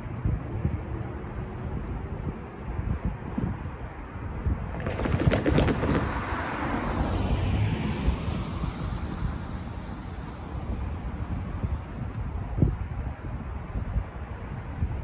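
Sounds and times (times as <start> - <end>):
tyres clattering over rails: 4.8 - 6.5
car passing by: 4.8 - 11.4.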